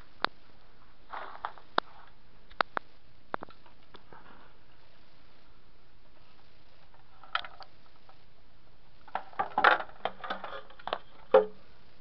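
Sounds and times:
plastic parts knocking and rattling: 9.1s - 11.6s.

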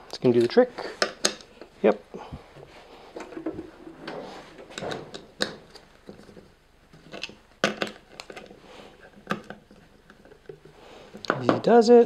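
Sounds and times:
plastic fan handled on wooden bench: 2.5s - 11.6s.

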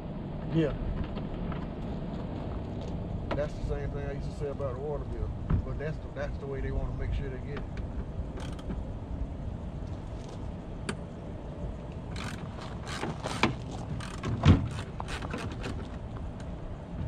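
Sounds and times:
hands and tools clicking: 12.0s - 16.0s.

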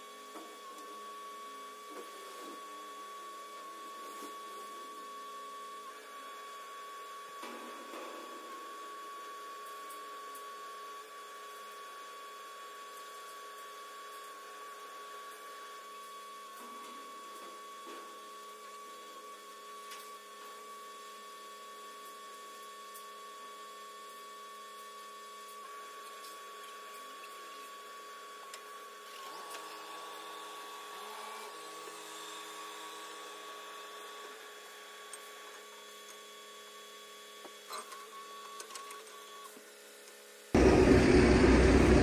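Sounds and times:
crane hydraulics whining: 40.6s - 42.0s.

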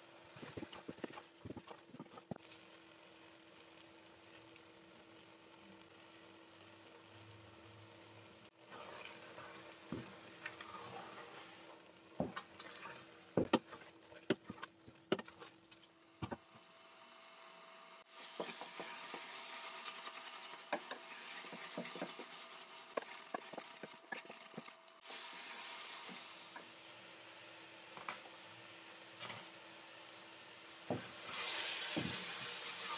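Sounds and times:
food sizzling: 0.0s - 32.9s
wooden spoon scraping steel pot: 18.4s - 24.8s.

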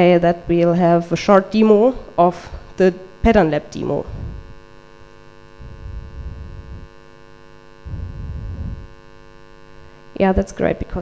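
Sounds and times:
electrical mains hum: 0.0s - 11.0s
brief low rumbles: 4.0s - 4.6s, 5.6s - 7.0s, 7.8s - 9.0s.

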